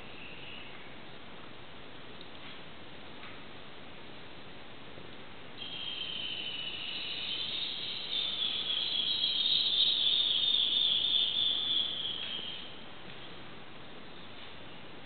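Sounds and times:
high-pitched insect buzzing: 0:05.6 - 0:12.6.

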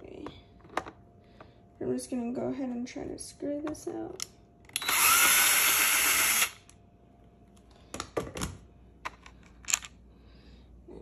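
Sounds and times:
cordless drill motor whine: 0:04.7 - 0:06.6.

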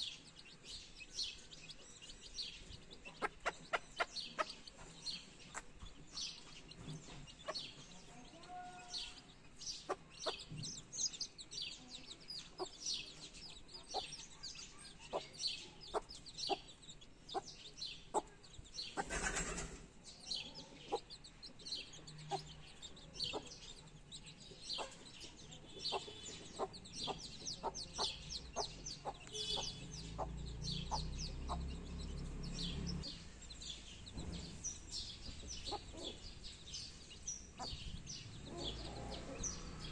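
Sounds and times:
chicks peeping: 0:00.0 - 0:39.9
hen clucking: 0:02.6 - 0:10.8, 0:15.1 - 0:19.8, 0:20.6 - 0:21.2, 0:21.8 - 0:24.2, 0:24.8 - 0:32.4, 0:35.2 - 0:36.3.

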